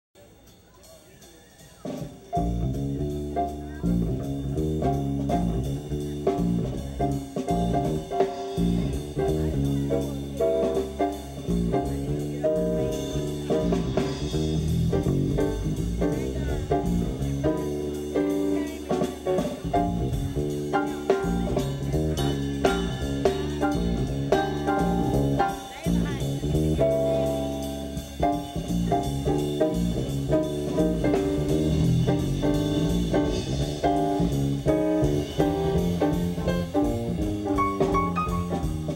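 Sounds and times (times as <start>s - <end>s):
drum kit: 0.2s - 38.9s
keyboard: 0.2s - 38.9s
guitar: 1.9s - 38.9s.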